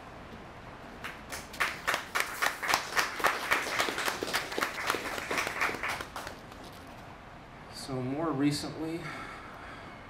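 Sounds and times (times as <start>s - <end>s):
audience applauding: 1.0s - 6.9s.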